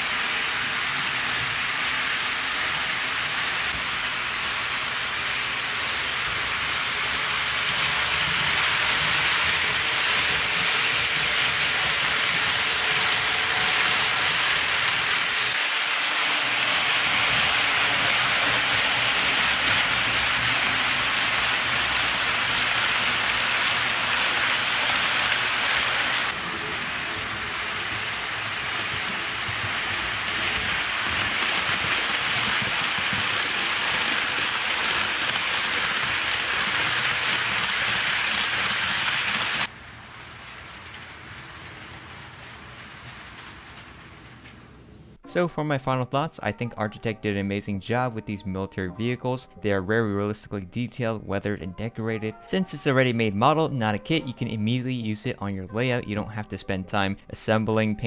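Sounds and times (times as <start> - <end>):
model train wheels rattling on rail: 0.0 - 44.6.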